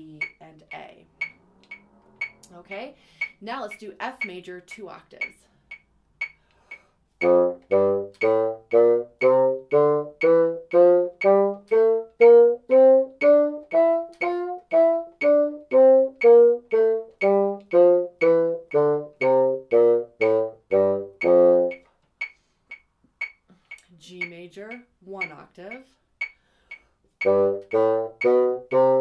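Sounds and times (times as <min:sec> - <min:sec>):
metronome ticking: 0:00.0 - 0:29.0
bassoon playing a scale: 0:07.2 - 0:21.9, 0:27.2 - 0:29.0.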